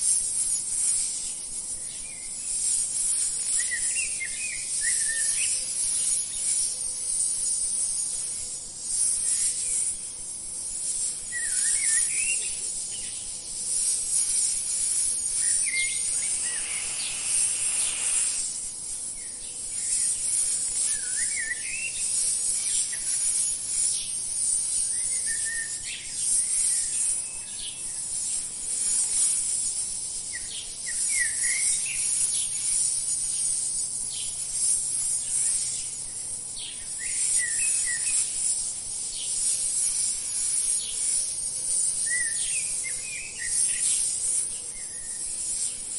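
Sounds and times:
insect chorus: 0.0s - 45.9s
soft rush of noise: 14.1s - 19.2s
bird chirps: 14.4s - 18.6s.

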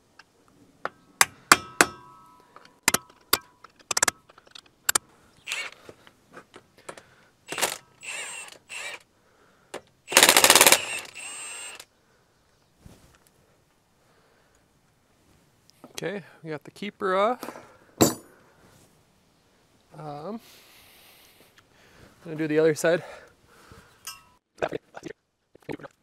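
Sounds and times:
ringing metal strikes: 1.5s - 3.6s.

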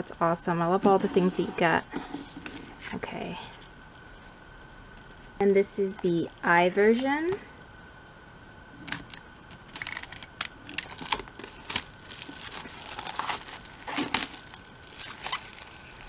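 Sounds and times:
plastic wrap crinkling: 8.9s - 16.0s
knife slitting plastic wrap: 9.7s - 16.0s.

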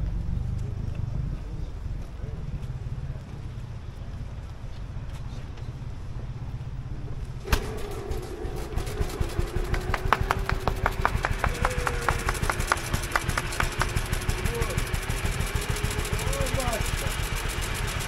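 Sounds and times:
old car engine starting and running: 5.4s - 18.0s.

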